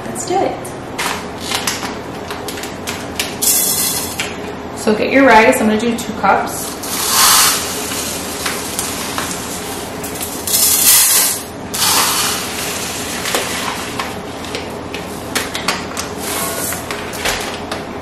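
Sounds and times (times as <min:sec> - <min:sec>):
dry rice being poured: 0:06.8 - 0:08.2.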